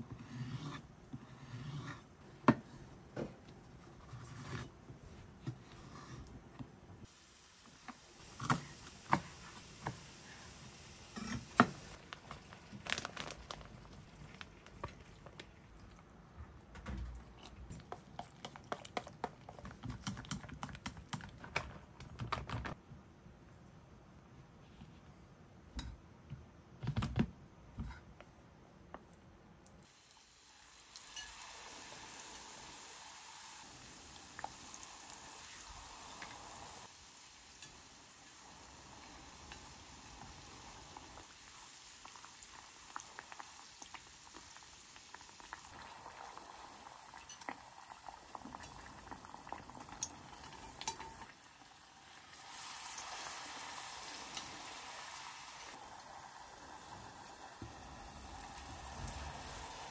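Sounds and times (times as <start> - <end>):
deep-frying oil sizzling: 29.8 - 59.9.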